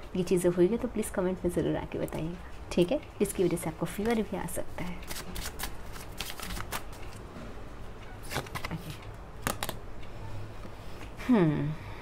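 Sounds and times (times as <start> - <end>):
cards being shuffled: 5.0 - 7.2, 8.2 - 9.8.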